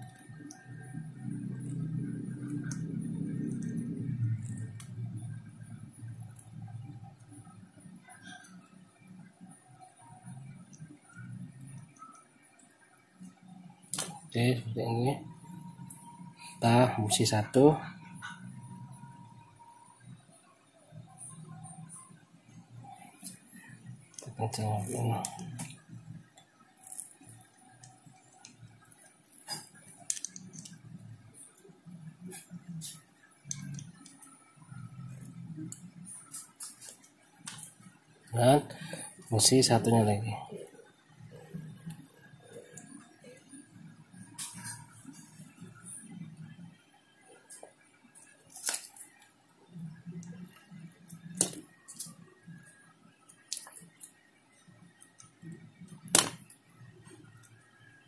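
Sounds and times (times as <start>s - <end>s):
pliers and wire clicks and scrapes: 0.0s - 1.0s, 4.4s - 5.2s, 23.0s - 37.9s, 44.2s - 45.8s, 47.5s - 49.3s, 50.2s - 52.7s, 53.3s - 54.2s.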